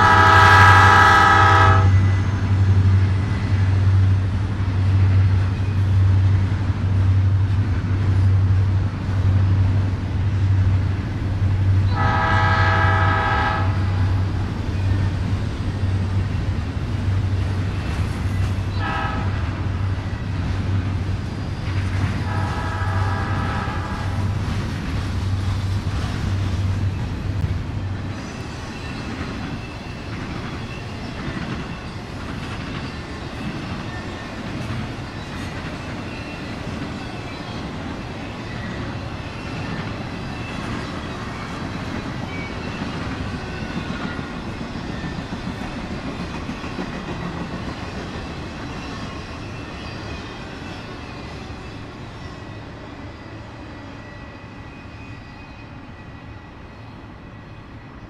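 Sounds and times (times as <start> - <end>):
locomotive engines droning: 0.0 - 58.0
train wheels clattering: 13.6 - 51.5
faint wheel squeal: 53.1 - 57.0.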